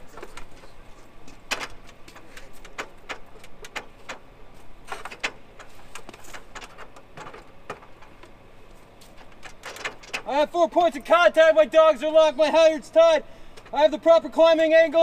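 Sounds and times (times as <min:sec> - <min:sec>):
metal ladder clanking: 0:00.0 - 0:08.4, 0:09.0 - 0:10.5.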